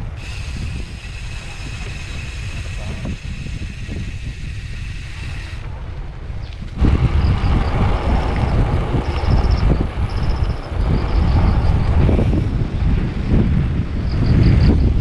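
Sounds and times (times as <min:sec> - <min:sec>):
bicycle road rumble: 0:00.0 - 0:15.0
wind buffeting microphone: 0:00.0 - 0:15.0.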